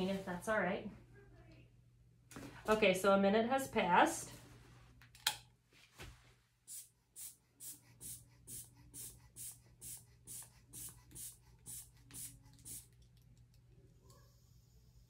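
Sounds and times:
inflation bulb puffing air: 6.7s - 12.9s.

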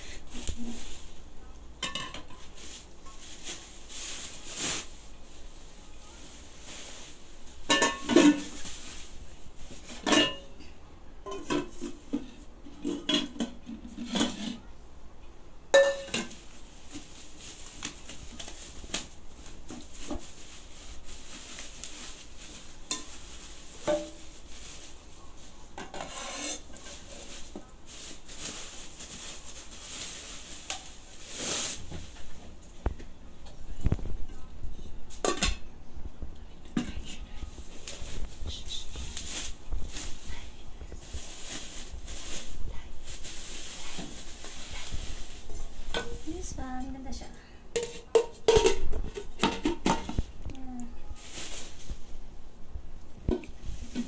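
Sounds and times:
bubble wrap rustling: 0.0s - 10.1s, 16.1s - 34.2s, 37.0s - 47.2s, 48.5s - 52.5s, 53.6s - 54.0s
metal pans knocking and clinking: 1.8s - 2.5s, 7.7s - 8.6s, 9.9s - 10.6s, 11.2s - 14.6s, 15.8s - 16.4s, 25.8s - 27.0s, 35.2s - 35.7s, 47.7s - 50.2s.

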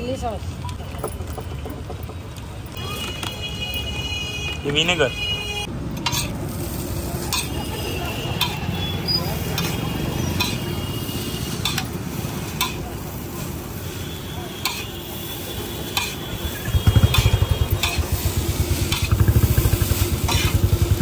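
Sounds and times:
noodles sizzling on a griddle: 6.1s - 16.6s, 17.2s - 21.0s.

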